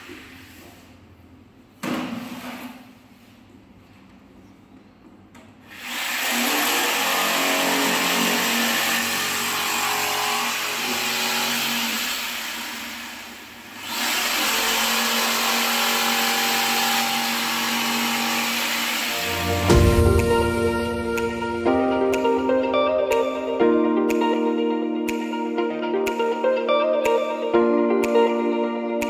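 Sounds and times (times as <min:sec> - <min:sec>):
jigsaw cutting vinyl plank: 0:05.7 - 0:19.8.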